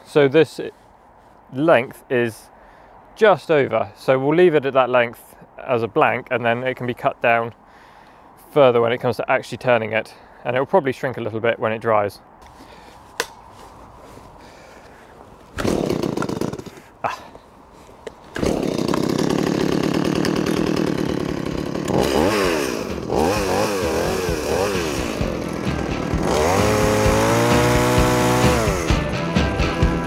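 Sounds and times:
chainsaw starting and revving: 0:15.6 - 0:17.0, 0:18.2 - 0:30.0.

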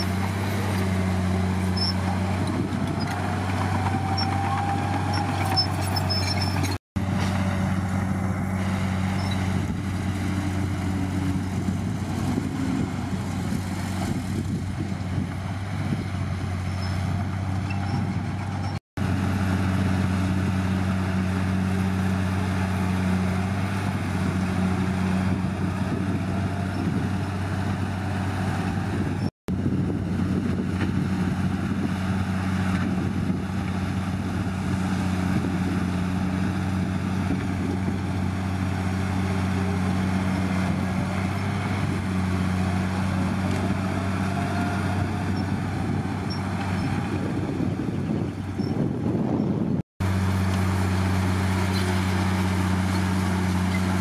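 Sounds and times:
bulldozer diesel engine running: 0:00.0 - 0:54.0.

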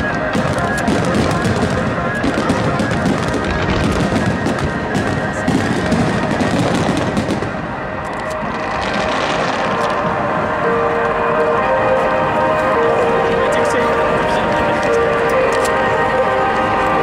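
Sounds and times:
music playing: 0:00.0 - 0:17.0.

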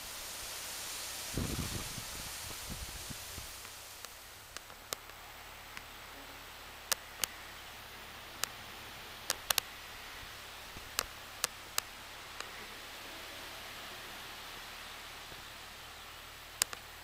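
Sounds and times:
steady hiss: 0:00.0 - 0:17.0
wind rumbling on microphone: 0:01.2 - 0:03.7
sharp irregular clicks: 0:03.6 - 0:05.9, 0:06.8 - 0:07.4, 0:09.2 - 0:09.8, 0:10.8 - 0:12.6, 0:16.6 - 0:16.9.

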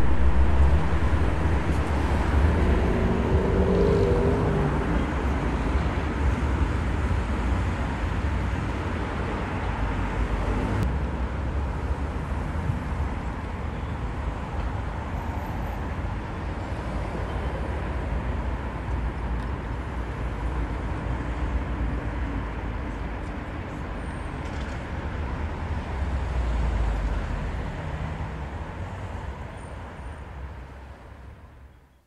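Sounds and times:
car driving rumble: 0:00.0 - 0:07.8.

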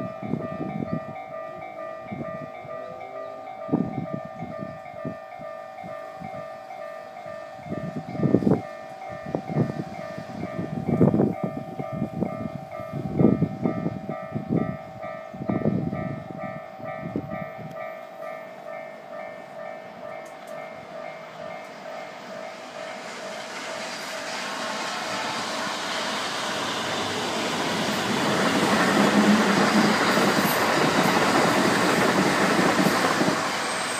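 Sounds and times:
rising hiss: 0:22.2 - 0:33.9.

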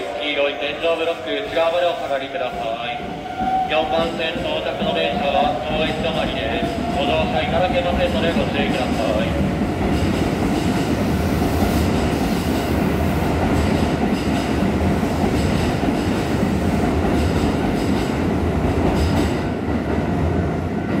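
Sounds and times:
train wheels rumbling: 0:00.0 - 0:21.0.

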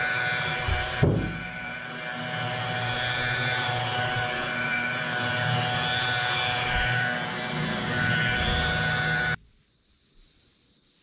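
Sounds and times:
electric buffer motor whine: 0:00.0 - 0:09.4.

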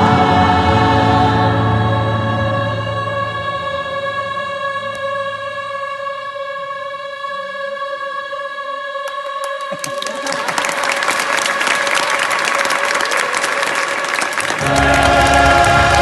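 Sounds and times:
choir holding a chord: 0:00.0 - 0:10.1, 0:14.4 - 0:16.0
audience applause: 0:09.6 - 0:16.0.

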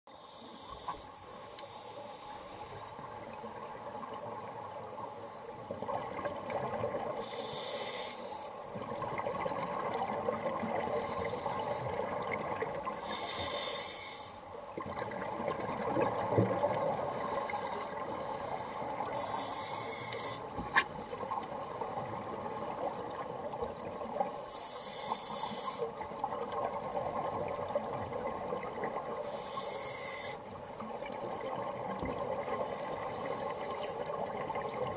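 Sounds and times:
regulator breathing hiss: 0:00.1 - 0:02.9, 0:04.9 - 0:05.6, 0:07.2 - 0:08.6, 0:11.0 - 0:12.0, 0:12.9 - 0:14.4, 0:17.1 - 0:21.2, 0:24.3 - 0:25.9, 0:29.1 - 0:30.5, 0:32.8 - 0:34.1
exhaled air bubbling: 0:14.8 - 0:19.4.

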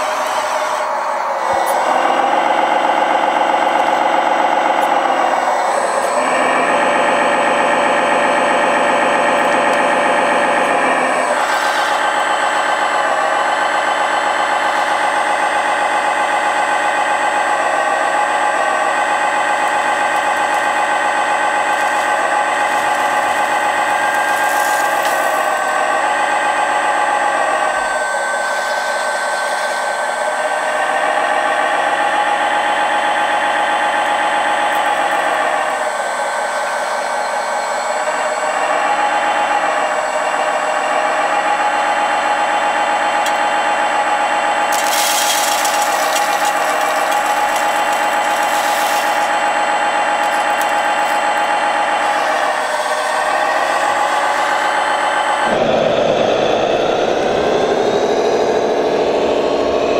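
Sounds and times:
electric hydraulic pump whining: 0:00.0 - 0:59.9.

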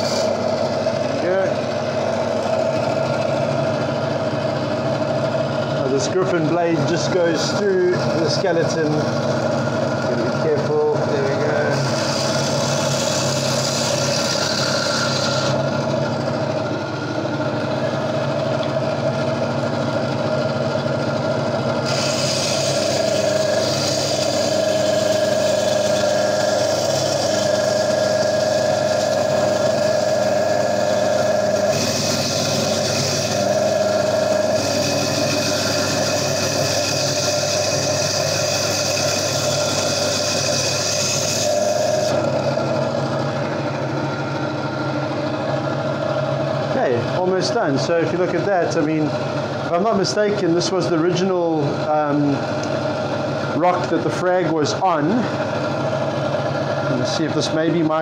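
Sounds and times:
bandsaw motor hum: 0:00.0 - 0:58.0
blade grinding hiss: 0:21.8 - 0:42.3.

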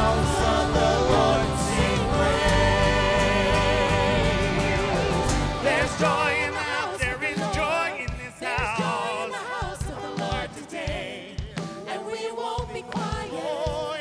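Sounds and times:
vocalists singing: 0:00.0 - 0:14.0
worship band playing: 0:00.0 - 0:14.0.

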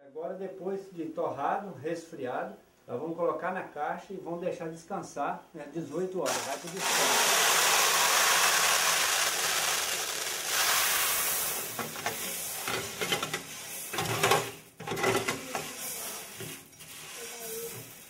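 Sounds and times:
coffee beans pouring into plastic bin: 0:06.3 - 0:12.8, 0:15.3 - 0:18.0.

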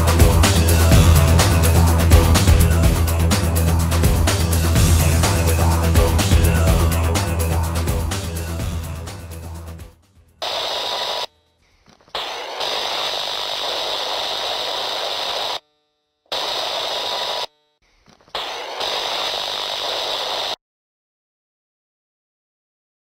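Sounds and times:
loud rushing hiss outdoors: 0:10.4 - 0:11.3.

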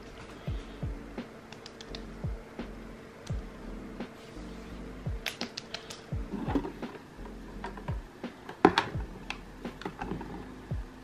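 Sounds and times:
soft background music: 0:00.0 - 0:11.0
jars being handled: 0:06.3 - 0:07.9.

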